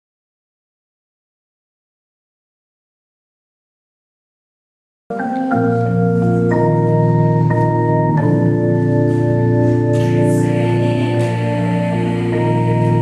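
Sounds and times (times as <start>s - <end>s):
electronic keyboard organ chords: 5.1s - 13.0s.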